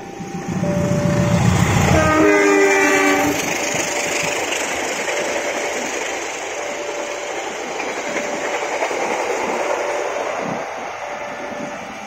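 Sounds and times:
level-crossing warning tone: 0.0s - 12.0s
train wheels clattering on rails: 0.0s - 12.0s.

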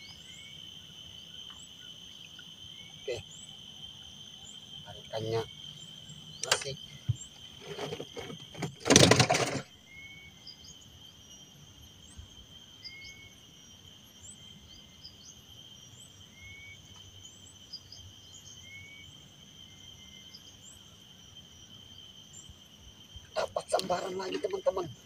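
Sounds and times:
insects droning: 0.0s - 25.0s
short loud handling noise: 7.6s - 9.7s.

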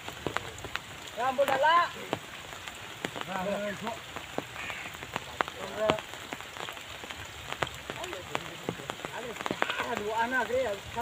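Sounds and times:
rain falling: 0.0s - 11.0s
short pitched calls: 4.5s - 5.0s.

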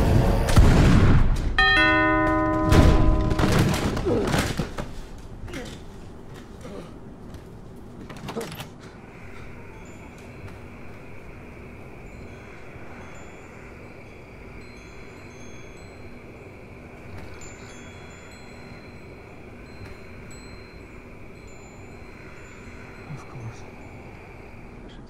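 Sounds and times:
low hum: 0.0s - 4.3s
faint high chime tones: 1.6s - 3.8s, 9.3s - 25.0s
background hiss: 8.9s - 25.0s.

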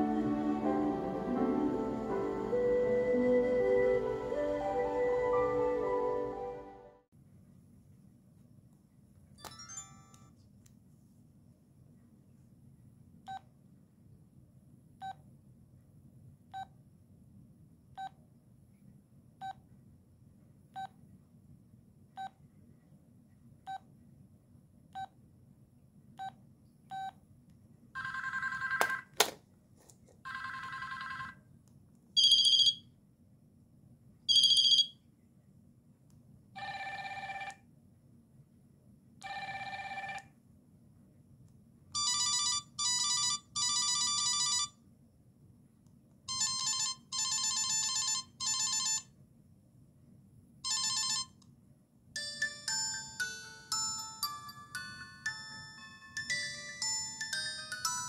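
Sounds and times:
phone keypad beeps: 32.2s - 32.8s, 34.3s - 34.9s
electronic bell ringtones: 34.3s - 34.9s, 52.2s - 58.0s.

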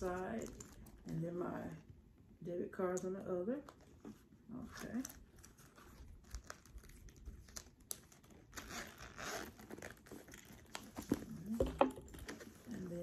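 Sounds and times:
fabric rustling and crinkling: 3.8s - 13.0s
zipper clicks: 8.5s - 10.6s.

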